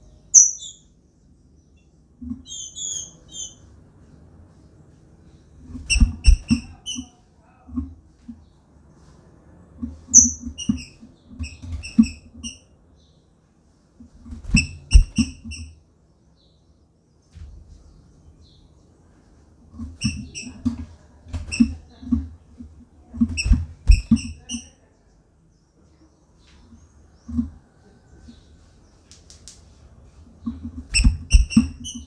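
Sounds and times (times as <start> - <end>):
thumps and rustling in cage: 5.5 - 12.6, 14.0 - 15.7, 17.3 - 18.1, 19.5 - 24.7, 26.4 - 28.5, 29.2 - 32.0.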